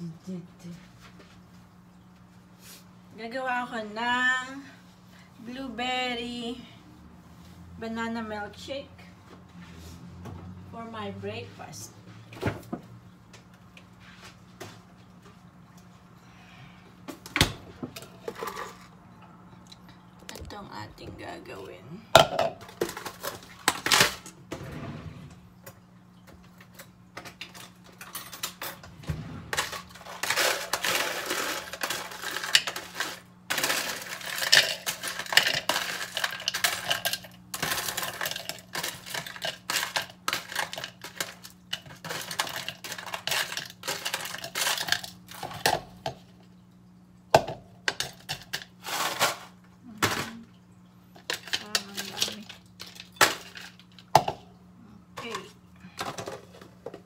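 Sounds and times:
frozen berries rattling into plastic cup: 29.6s - 45.7s, 51.2s - 54.2s.

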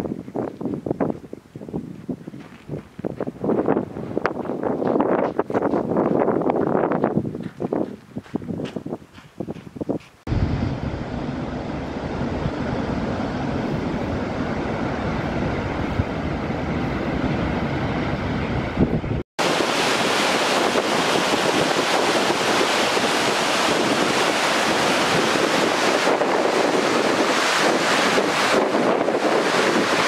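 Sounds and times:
wind on microphone: 0.0s - 30.0s
distant waterfall rumbling: 10.3s - 17.5s, 19.4s - 30.0s
river white water hissing: 19.4s - 30.0s.

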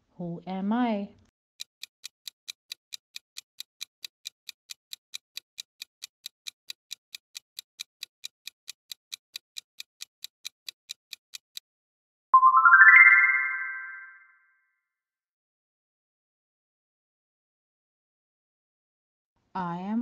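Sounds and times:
clock-style ticking: 1.6s - 11.7s.

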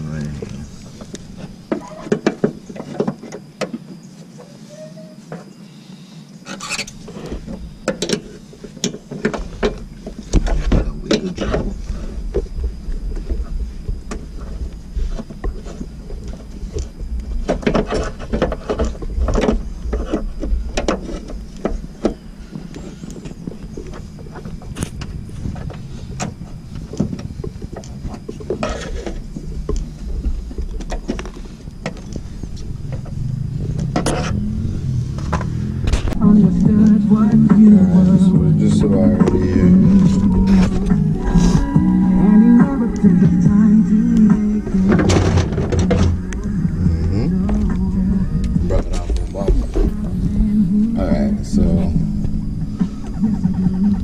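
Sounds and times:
faint high tone: 1.7s - 2.2s, 4.3s - 5.8s
low rumble: 31.5s - 54.0s.

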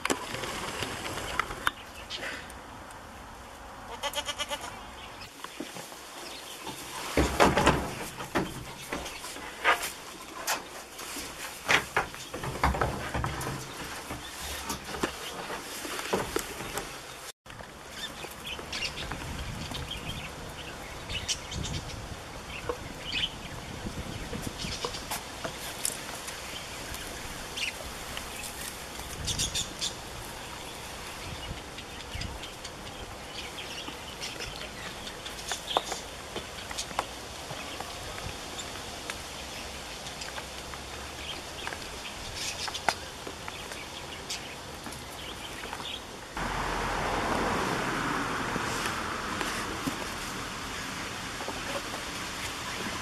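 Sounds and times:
goats scrambling through straw: 0.1s - 1.6s, 5.6s - 17.3s, 24.3s - 31.1s
low thumps of hooves: 5.4s - 21.8s
small birds chirping: 17.9s - 46.3s.

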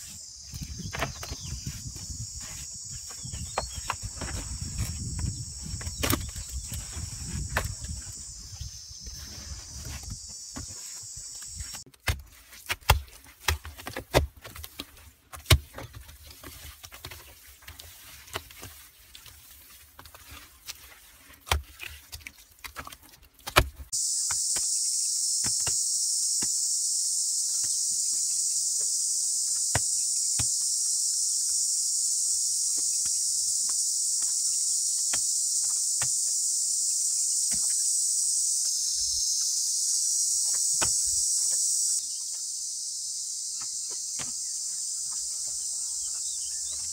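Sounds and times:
high insect drone: 0.0s - 11.8s, 23.9s - 46.9s.

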